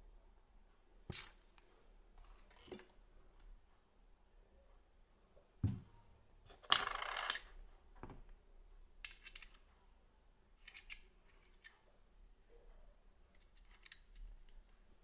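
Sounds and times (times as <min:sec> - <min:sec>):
thump: 0:05.6 - 0:05.9
small parts clicking: 0:09.0 - 0:09.7, 0:10.6 - 0:11.8, 0:13.3 - 0:14.7.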